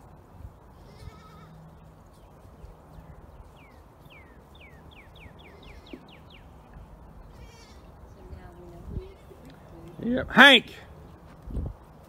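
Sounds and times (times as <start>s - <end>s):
goat bleating: 0.8s - 1.6s, 7.3s - 7.9s.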